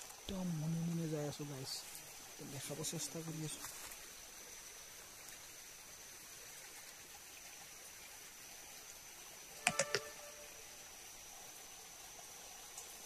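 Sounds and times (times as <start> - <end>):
high-pitched insect drone: 9.5 - 11.1.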